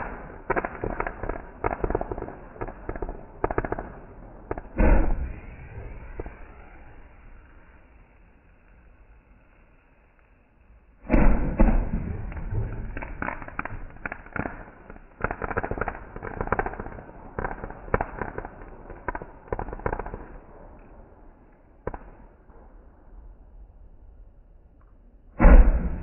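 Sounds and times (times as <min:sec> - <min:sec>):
firework bang: 0:00.0 - 0:08.3, 0:11.0 - 0:20.4, 0:25.4 - 0:26.0
fireworks crackling and popping: 0:00.0 - 0:22.9.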